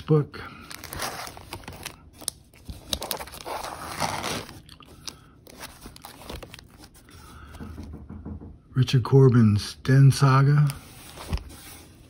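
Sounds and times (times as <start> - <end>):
plastic sleeves crinkling: 0.6 - 7.1.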